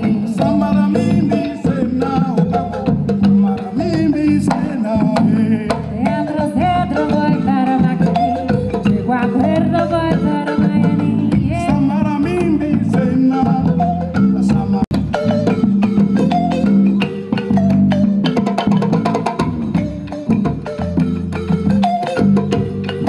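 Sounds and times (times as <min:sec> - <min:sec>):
woman singing: 0:00.0 - 0:02.1, 0:05.7 - 0:13.3
balafon: 0:00.0 - 0:23.0
hand drums: 0:00.0 - 0:23.0.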